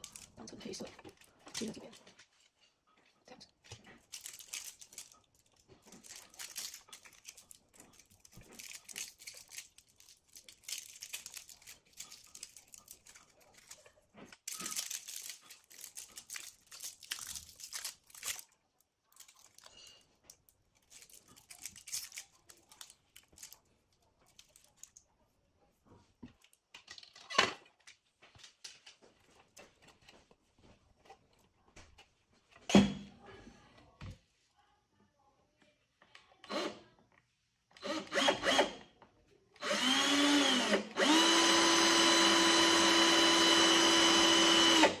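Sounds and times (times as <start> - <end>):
wires crinkling and rustling: 0.0 - 25.2.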